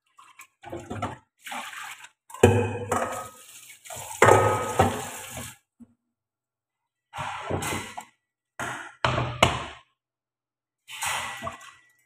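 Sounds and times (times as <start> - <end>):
water splashing in metal pot: 0.0 - 5.6.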